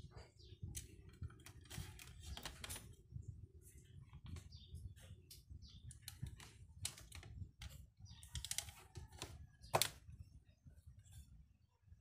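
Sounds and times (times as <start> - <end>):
plastic parts clicking and rattling: 0.7 - 3.0, 5.9 - 10.0.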